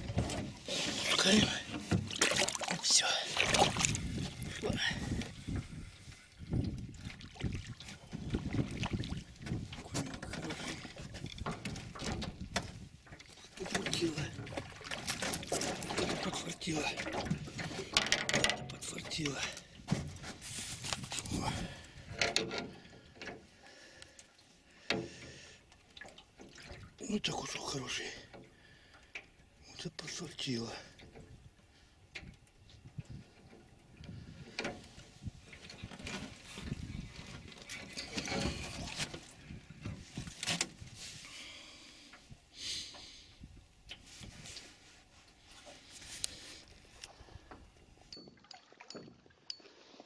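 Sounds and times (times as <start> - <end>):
fishing gear knocking and clicking: 13.6 - 20.3, 22.1 - 23.4.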